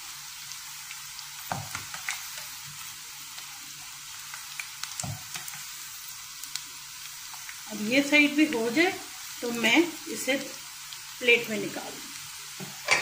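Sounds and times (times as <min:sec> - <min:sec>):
pakoras sizzling in hot oil: 0:00.0 - 0:13.0.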